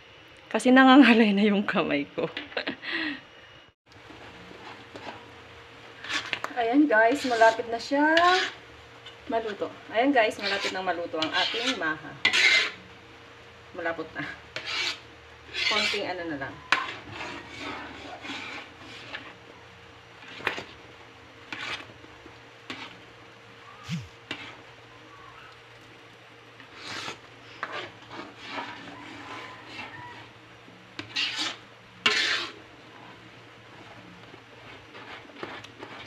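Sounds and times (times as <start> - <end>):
metal spatula scraping a metal pan: 6.0 - 12.9, 14.2 - 19.4, 20.2 - 20.8, 21.5 - 22.0, 22.7 - 23.0, 24.3 - 24.6, 26.6 - 30.4, 31.0 - 36.0.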